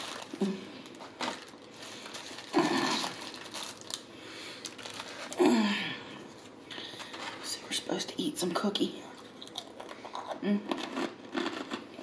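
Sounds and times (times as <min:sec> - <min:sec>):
wrappers crinkling: 0:00.0 - 0:05.7
woman humming: 0:02.5 - 0:03.2, 0:05.3 - 0:06.2, 0:10.4 - 0:10.7.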